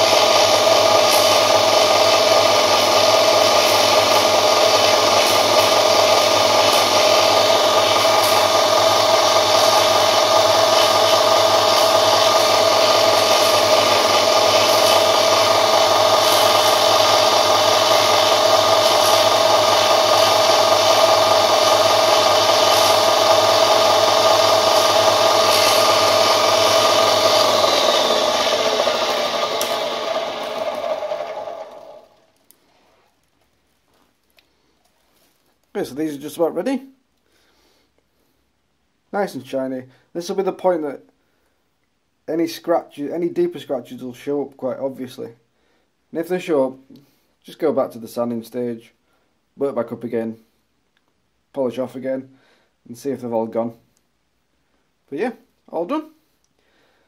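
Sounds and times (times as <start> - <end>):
bench polisher humming: 0.0 - 32.3.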